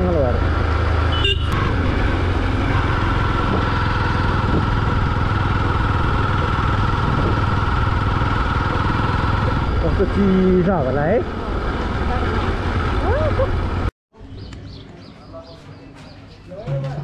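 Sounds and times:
motorcycle engine running: 0.0s - 13.9s.

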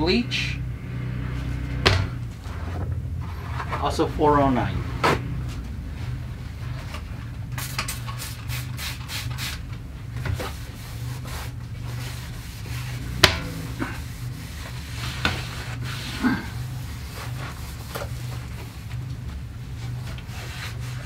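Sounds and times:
steady low hum: 0.0s - 21.0s
spray bottle squirting: 7.6s - 9.6s
cloth wiping cabinet: 10.3s - 21.0s.

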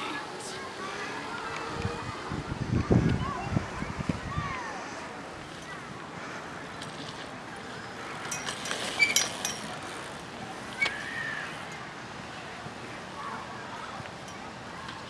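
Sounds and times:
bike rolling on dirt: 0.0s - 11.7s
metallic clinks and rattles: 8.2s - 9.8s.

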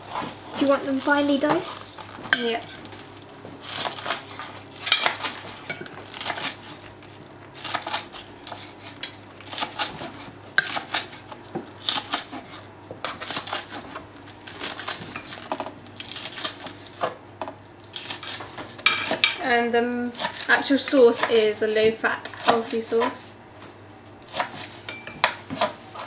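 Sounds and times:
knife chopping on board: 24.3s - 25.7s.

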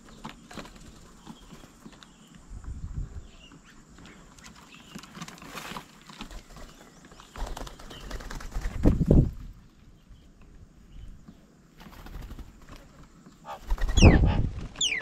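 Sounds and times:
bird wings flapping: 0.0s - 2.0s, 4.4s - 9.4s, 11.8s - 15.0s
faint bird chirps: 13.2s - 15.0s.

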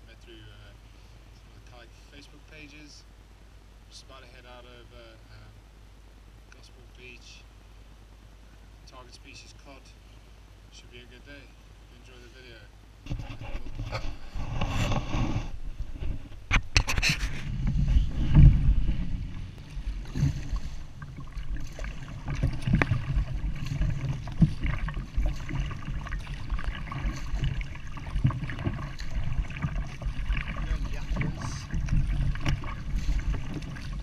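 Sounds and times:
wind rumble on microphone: 13.0s - 34.0s
paddle strokes splashing: 13.1s - 34.0s.

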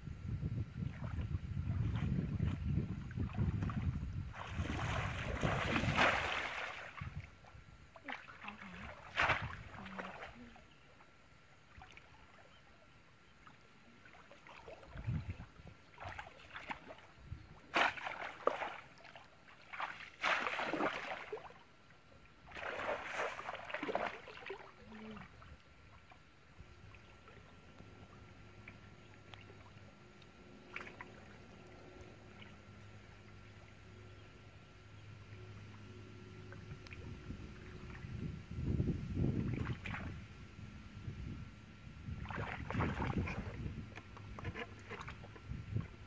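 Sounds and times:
muddy water splashing: 0.8s - 10.8s, 14.0s - 21.6s, 22.4s - 26.2s, 30.6s - 31.4s, 36.4s - 40.3s, 42.0s - 46.0s.

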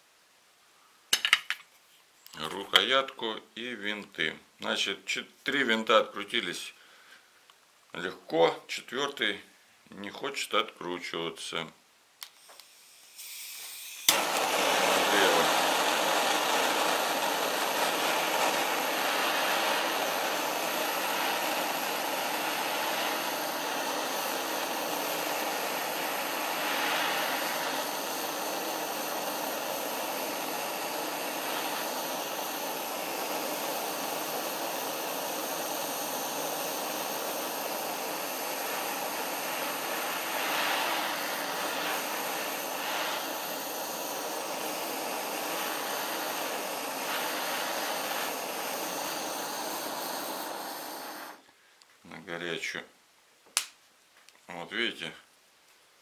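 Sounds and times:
gas torch hissing: 12.2s - 51.6s.

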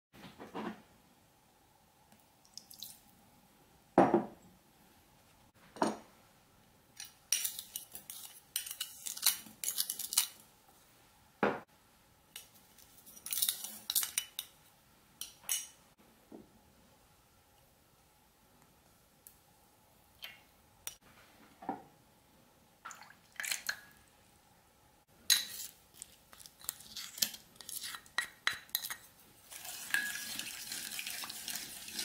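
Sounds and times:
spoon scraping in glass bowl: 25.3s - 32.0s
glass bowls clinking on saucepan: 29.8s - 30.5s.

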